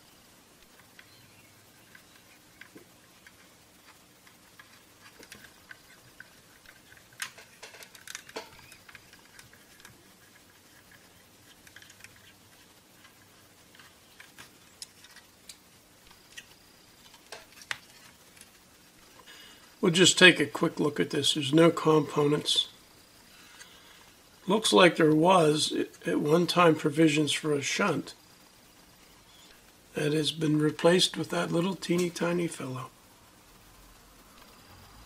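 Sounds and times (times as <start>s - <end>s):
clicks and scrapes of handling plastic: 1.8s - 19.7s.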